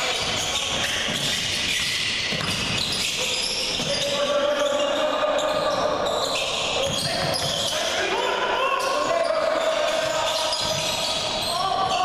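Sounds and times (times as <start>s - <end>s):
people talking: 3.2s - 6.1s, 6.7s - 12.0s.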